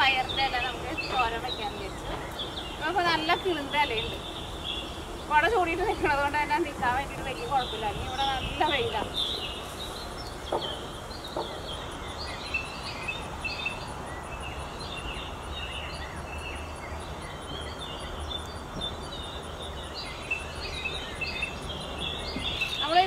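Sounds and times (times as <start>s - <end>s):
small birds chirping: 0.0s - 23.0s
steady background hiss: 0.0s - 23.0s.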